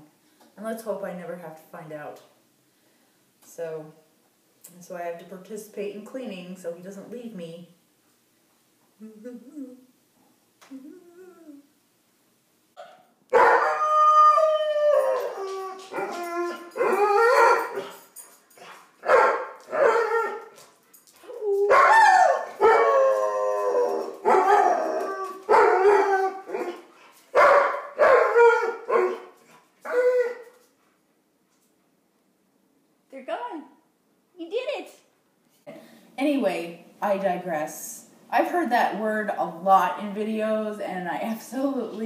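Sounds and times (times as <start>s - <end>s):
dog howling: 13.4s - 17.9s, 21.3s - 26.8s, 27.4s - 30.6s.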